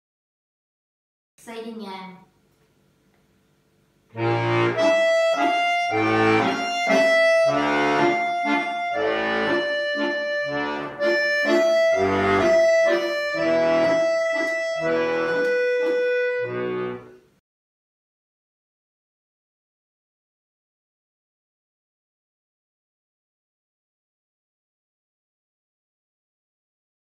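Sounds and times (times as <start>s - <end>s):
accordion playing a waltz: 4.2s - 17.2s.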